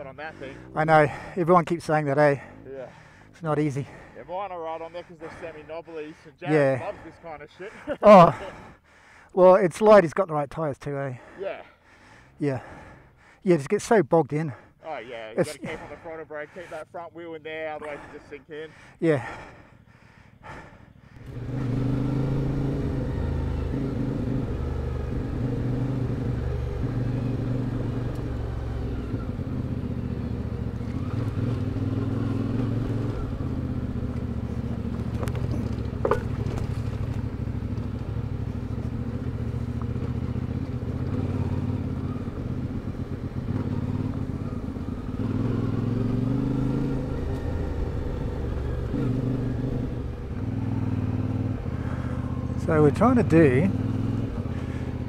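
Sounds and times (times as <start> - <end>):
motorcycle engine revving: 0.0 - 5.6, 19.2 - 55.0.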